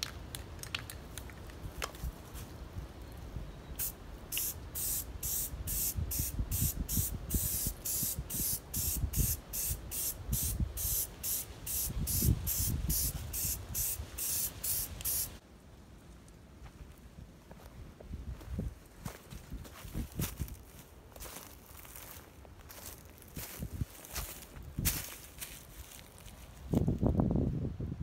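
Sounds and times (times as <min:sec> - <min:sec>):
aerosol can spraying bursts: 0:03.8 - 0:15.4.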